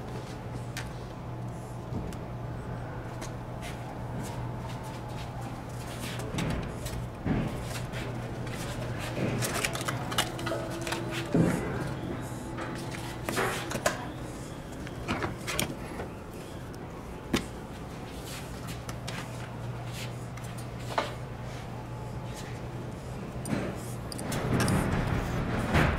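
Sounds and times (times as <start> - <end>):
steady low hum: 0.0 - 25.9.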